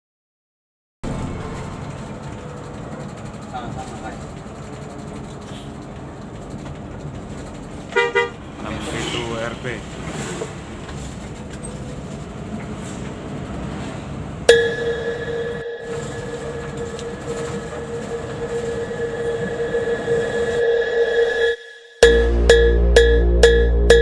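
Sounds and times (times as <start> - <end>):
horn long steady note: 1.0 - 3.3, 14.5 - 24.0
bus road and engine noise: 1.0 - 20.7.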